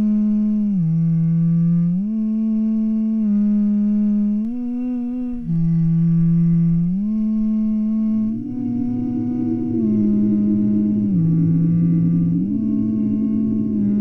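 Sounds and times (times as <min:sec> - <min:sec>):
person humming slow melody: 0:00.0 - 0:14.0
low rough noise: 0:04.1 - 0:14.0.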